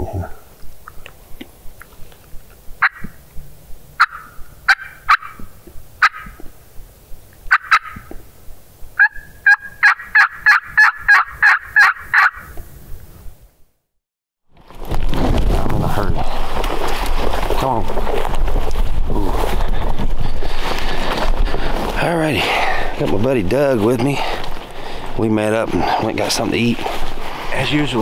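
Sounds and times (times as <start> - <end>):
turkey call clucks and yelps: 2.8 - 3.2, 4.0 - 6.5, 7.5 - 8.2, 9.0 - 12.6.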